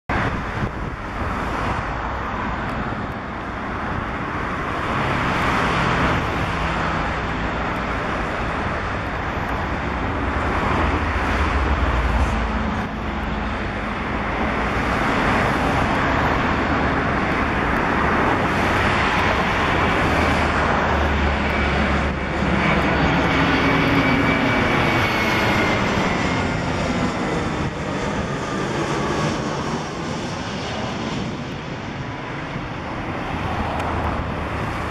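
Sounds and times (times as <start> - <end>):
jet airliner flying overhead: 0.1 - 34.9.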